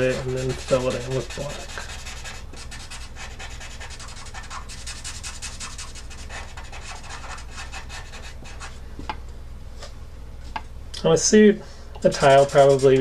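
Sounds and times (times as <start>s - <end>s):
marker scrubbing on paper: 0.0s - 8.8s, 12.0s - 13.0s.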